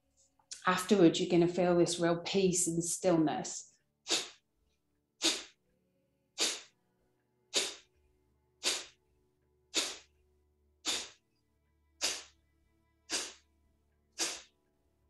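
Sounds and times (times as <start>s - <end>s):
forceful nasal exhalations: 4.1s - 4.4s, 5.2s - 5.6s, 6.4s - 6.7s, 7.5s - 7.9s, 8.6s - 9.0s, 9.7s - 10.1s, 10.8s - 11.2s, 12.0s - 12.4s, 13.1s - 13.5s, 14.2s - 14.6s.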